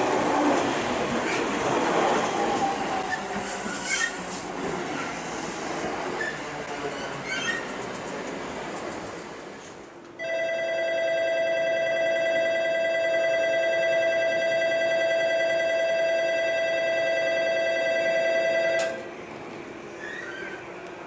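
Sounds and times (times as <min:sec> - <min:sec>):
electronic departure bell ringing: 0:10.2 - 0:19.1.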